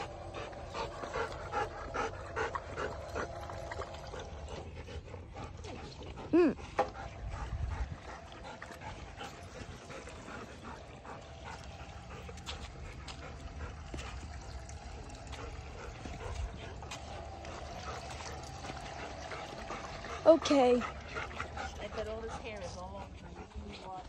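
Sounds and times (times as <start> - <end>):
water trickling: 0.0 - 23.5
dogs clicking and scuffing: 8.0 - 24.0.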